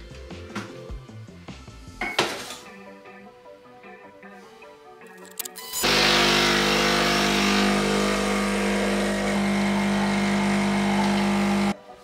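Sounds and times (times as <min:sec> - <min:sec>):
espresso machine pump buzzing: 0:05.8 - 0:11.8.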